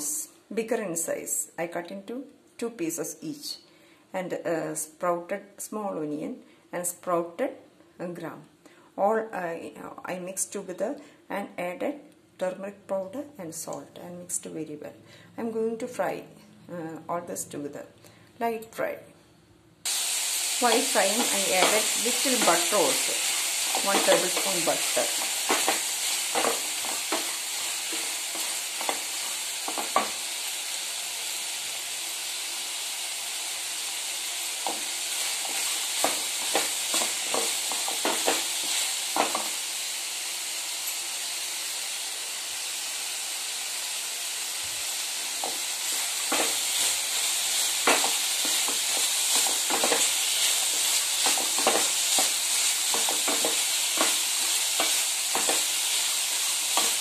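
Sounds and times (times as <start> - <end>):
food sizzling in frying pan: 19.8 - 57.0
spatula scraping pan: 20.7 - 30.2, 34.6 - 39.5, 45.4 - 56.0.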